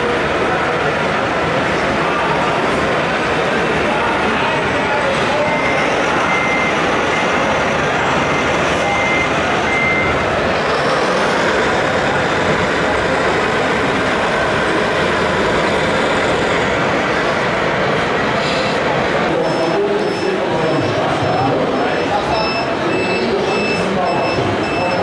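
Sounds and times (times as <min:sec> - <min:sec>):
toy truck engine noise: 0:00.0 - 0:20.3
short high beeps: 0:05.3 - 0:10.2, 0:19.4 - 0:20.9, 0:21.7 - 0:25.0.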